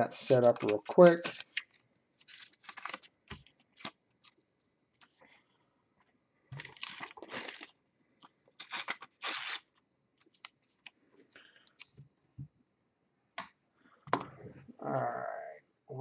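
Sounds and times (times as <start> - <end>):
paper rustling and crinkling: 0.4 - 4.4, 6.6 - 7.8, 8.6 - 10.9.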